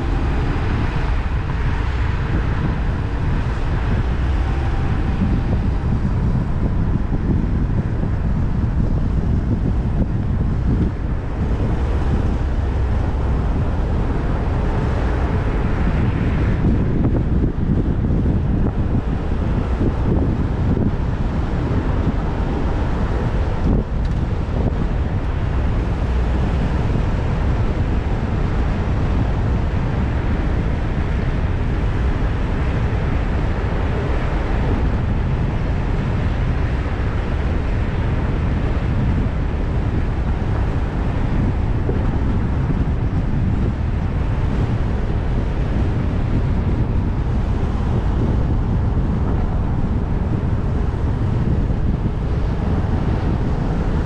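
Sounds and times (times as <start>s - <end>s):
city street traffic: 0.0s - 54.0s
wind rumble on microphone: 0.0s - 54.0s.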